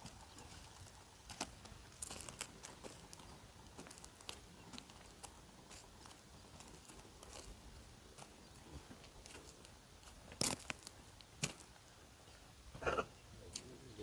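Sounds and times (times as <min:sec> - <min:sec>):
faint footsteps on stony ground: 0:00.0 - 0:12.5, 0:13.4 - 0:14.0.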